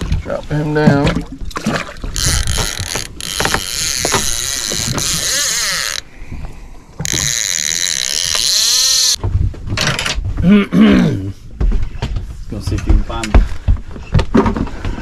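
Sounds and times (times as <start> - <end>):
fishing reel spool spinning: 2.2 - 6.0, 7.0 - 9.2.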